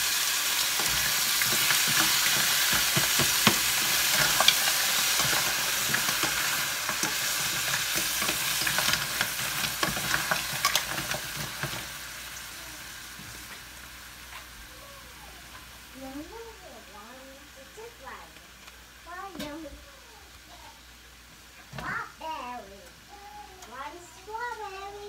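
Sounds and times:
food sizzling in a skillet: 0.0 - 25.0
wooden spoon scraping a pan: 0.7 - 11.9.

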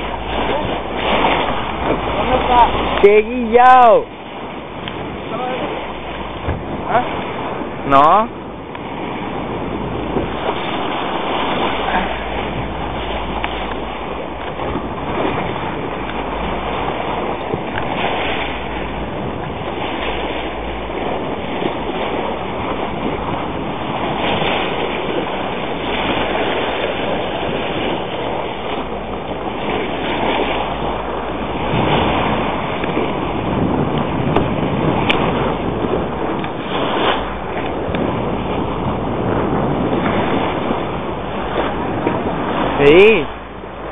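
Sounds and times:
sea water washing around boat: 0.0 - 43.9
wind buffeting microphone: 0.0 - 43.9.

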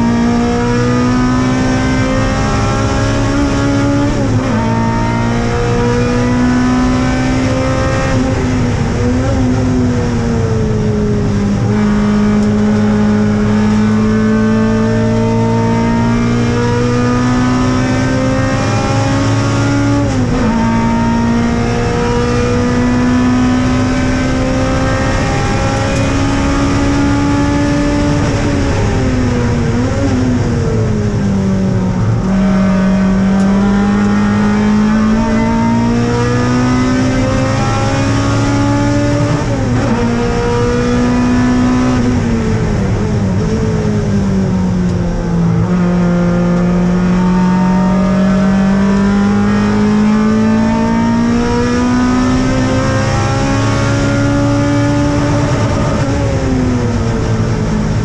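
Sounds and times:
race car engine revving: 0.0 - 58.0.

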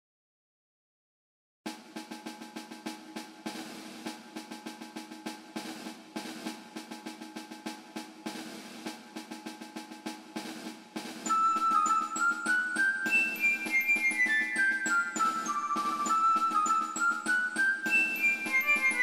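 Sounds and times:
background music with drum beat: 1.7 - 19.0.

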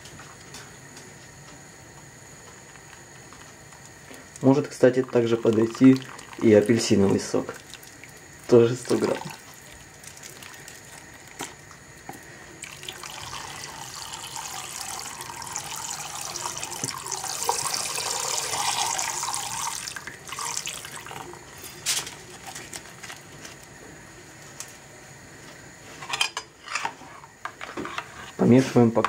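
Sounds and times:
juice pouring into hot liquid: 2.5 - 23.7.

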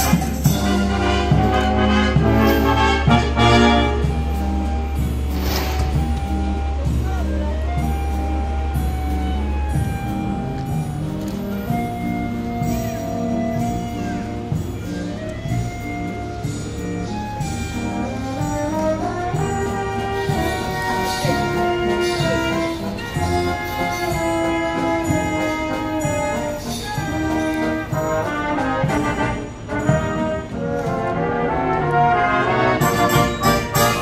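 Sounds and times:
drum kit: 0.0 - 30.6, 32.8 - 34.0
brass band playing: 0.0 - 34.0
cymbal strokes: 3.8 - 7.0.

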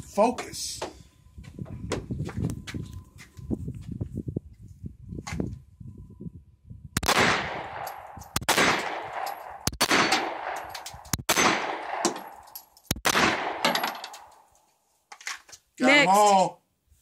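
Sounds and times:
handgun shots with echo: 7.0 - 14.4.

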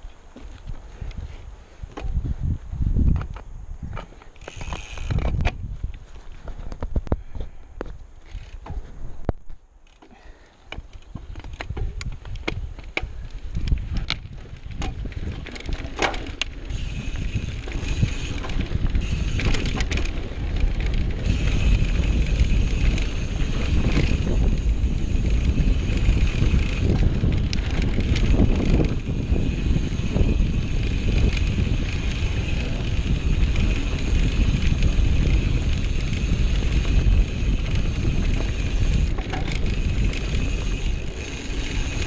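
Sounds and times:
bike clicking and rattling: 0.0 - 2.3, 3.0 - 42.0
wind rumble on microphone: 0.0 - 9.6, 10.7 - 42.0
bike tyres rolling on dirt: 0.0 - 42.0.

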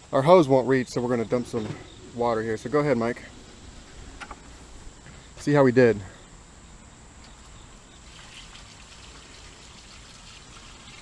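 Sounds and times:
water pouring and trickling: 7.4 - 11.0.

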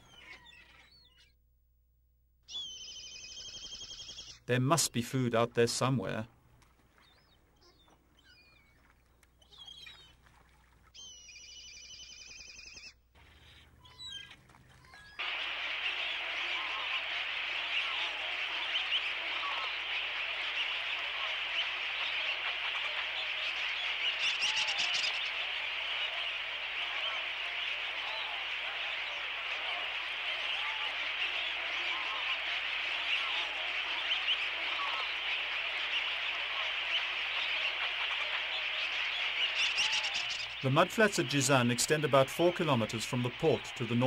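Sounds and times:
faint bird chirps: 0.0 - 1.4, 2.4 - 4.6, 6.9 - 10.2, 10.9 - 44.0
bird trilling call: 11.0 - 14.3, 14.9 - 43.9
flock of shorebirds calling: 11.0 - 44.0.

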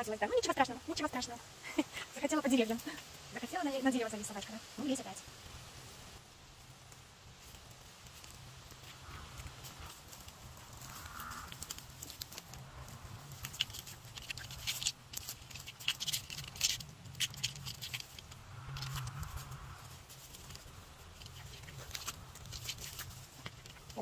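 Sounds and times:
dog claws scratching bark: 8.0 - 24.0.

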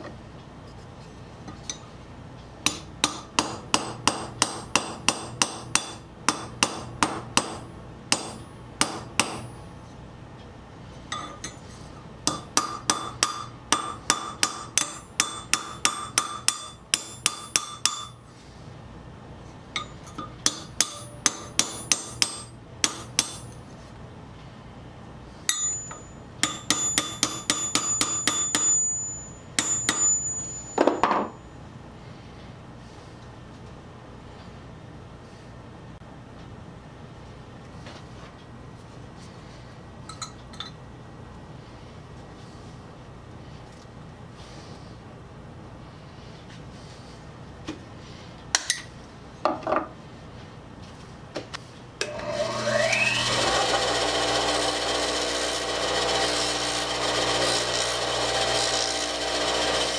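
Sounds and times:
hammer tapping steel pin: 2.6 - 9.6, 11.1 - 11.6, 12.3 - 18.2, 19.8 - 23.6, 25.5 - 31.3.

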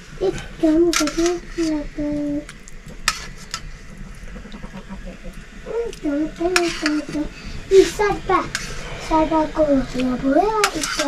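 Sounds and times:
tongs clinking on steel bowls: 10.6 - 11.0.

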